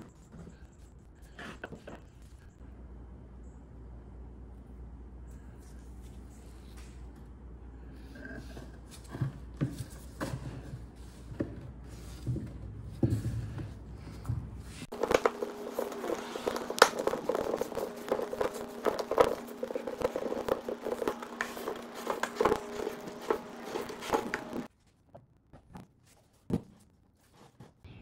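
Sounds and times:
steady hum: 2.3 - 24.7
wooden bucket cracking and creaking: 14.9 - 24.7.

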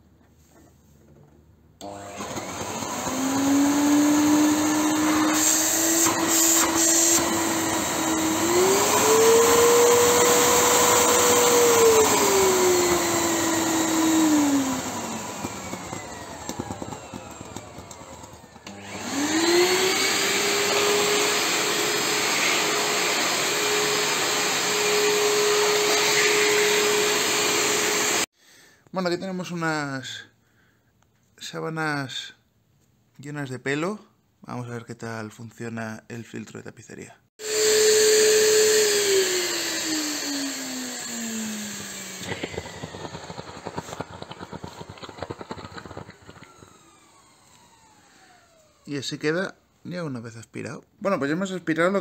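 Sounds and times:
vacuum cleaner motor whine: 1.8 - 28.3, 37.4 - 48.9.

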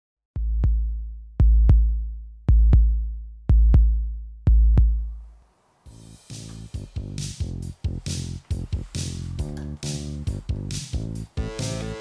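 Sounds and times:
deep bass drum beat: 0.4 - 5.2, 5.9 - 12.0
background music: 5.9 - 12.0.

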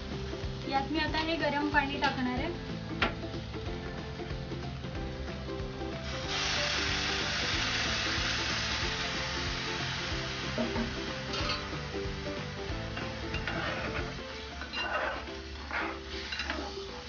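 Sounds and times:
water pouring into pot: 5.5 - 15.4.

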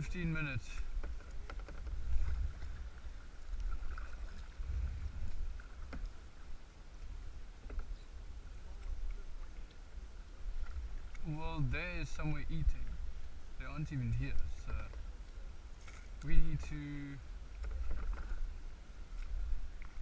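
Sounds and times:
paddle strokes in water: 0.0 - 20.0
wind buffeting microphone: 1.9 - 5.7.

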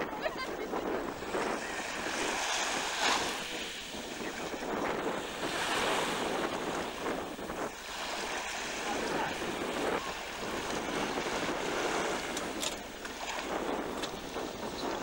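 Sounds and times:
choppy sea washing: 0.0 - 15.0
wind buffeting microphone: 0.0 - 15.0.

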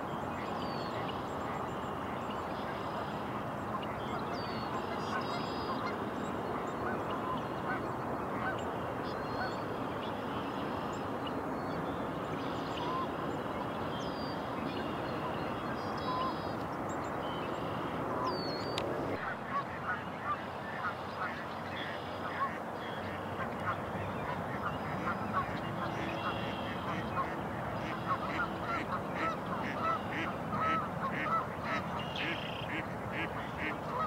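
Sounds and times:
waterfowl calling: 2.6 - 6.0, 12.4 - 13.2, 14.7 - 16.6, 17.4 - 34.0.

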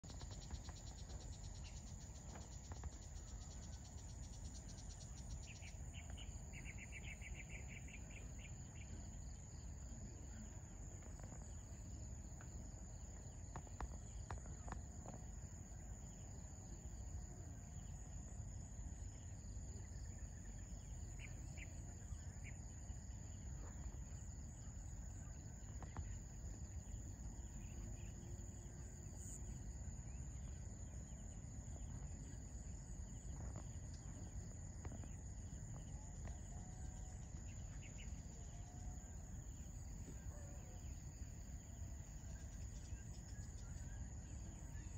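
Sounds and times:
crickets trilling: 0.0 - 44.9
low outdoor rumble: 0.0 - 44.9.

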